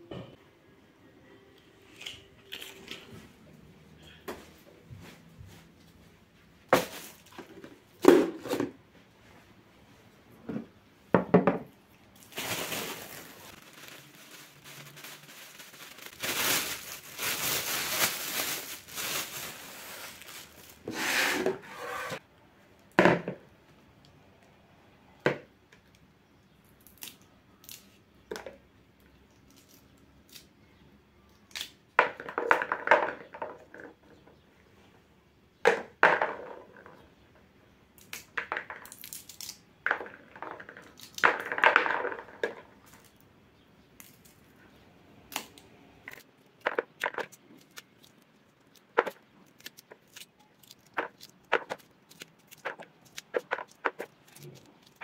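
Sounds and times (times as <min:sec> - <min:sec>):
plastic bag rustling: 0:06.7 - 0:07.6, 0:12.1 - 0:22.2, 0:46.1 - 0:55.0
pea pods split by hand: 0:38.0 - 0:42.1, 0:45.3 - 0:55.0
peas dropping into plastic bowl: 0:38.2 - 0:39.0, 0:39.8 - 0:42.7.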